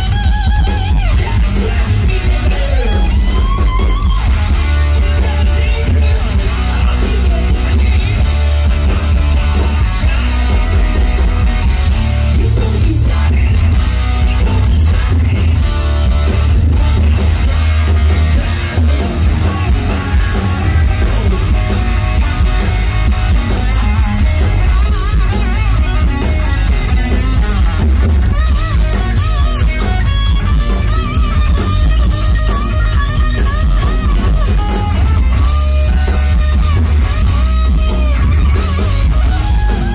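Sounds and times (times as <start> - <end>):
drum kit: 0.0 - 39.9
electric bass: 0.0 - 39.9
electric guitar: 0.0 - 39.9.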